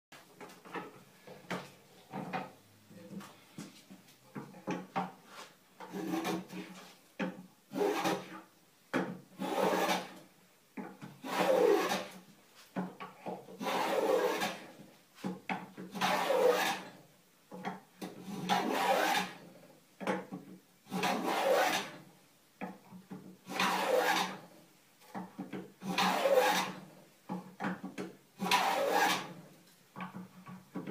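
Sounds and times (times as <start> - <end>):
plane shaving wood: 9.4 - 10.2, 11.2 - 12.2, 13.6 - 14.6, 16.0 - 16.8, 23.5 - 24.4, 25.9 - 26.8, 28.4 - 29.3.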